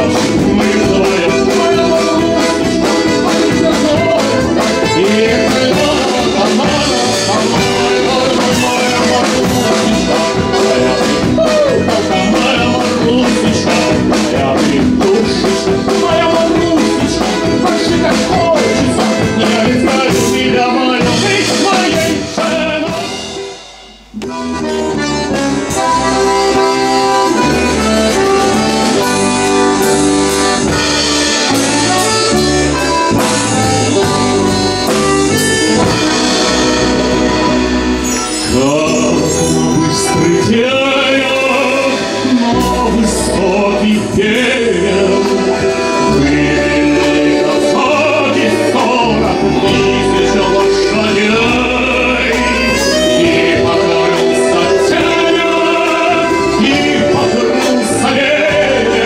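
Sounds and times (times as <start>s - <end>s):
man singing with instruments: 0.0s - 23.5s, 31.4s - 59.0s
accordion tune: 0.0s - 59.0s.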